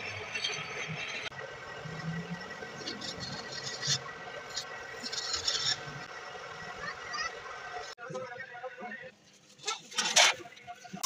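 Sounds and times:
scraper scraping steel saw blade: 2.9s - 6.0s.

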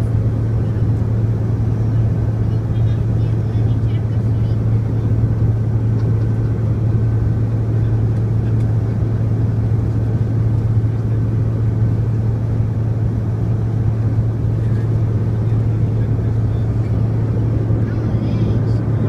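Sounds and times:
jet cabin engine drone: 0.0s - 19.0s.

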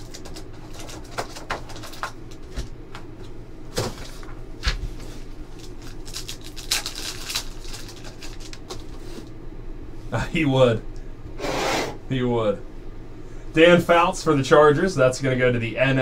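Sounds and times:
foil wrapper crinkling and tearing: 5.5s - 9.0s.

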